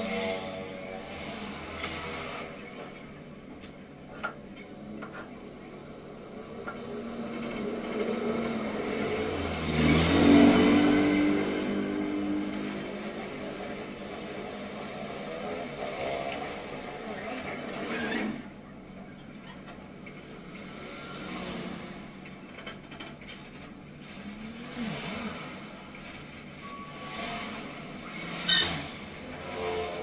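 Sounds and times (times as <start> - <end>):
vehicle engine passing: 6.5 - 17.9.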